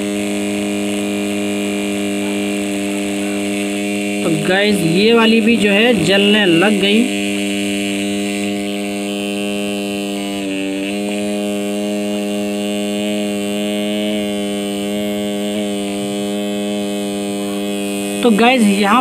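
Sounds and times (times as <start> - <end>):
electric motors humming: 0.0 - 19.0.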